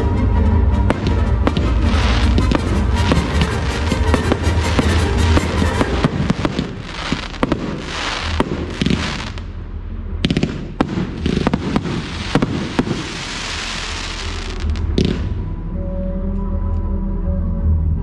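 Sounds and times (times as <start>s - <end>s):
hissing crackle: 0.9s - 9.5s, 11.0s - 15.2s.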